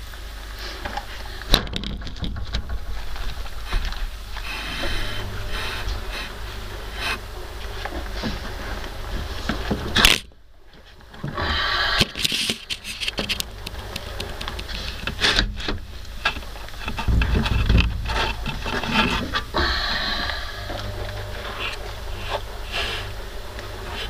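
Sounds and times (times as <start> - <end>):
low rumble: 1.9 - 10.7, 15.8 - 24.0
scraping and rubbing: 2.0 - 10.2, 12.0 - 19.6.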